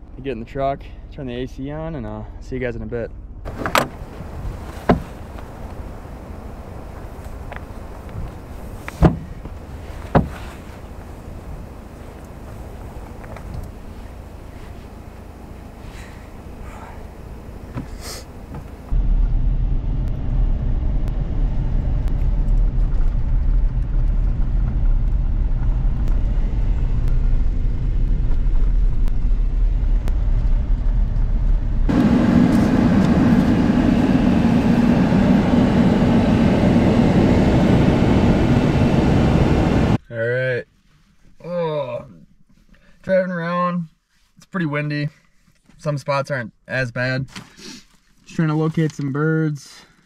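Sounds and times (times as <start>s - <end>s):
truck engine and road noise: 3.1s - 40.0s.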